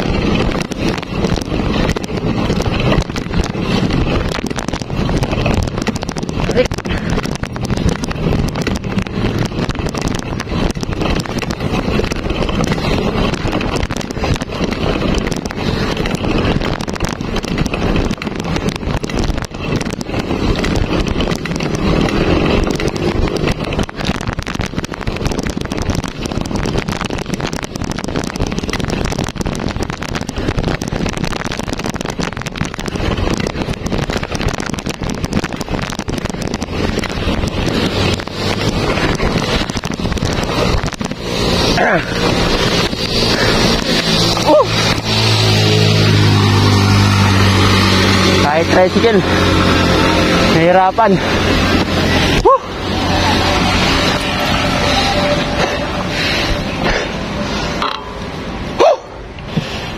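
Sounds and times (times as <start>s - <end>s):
bicycle road noise on concrete: 0.0s - 59.9s
wind buffeting microphone: 0.0s - 59.9s.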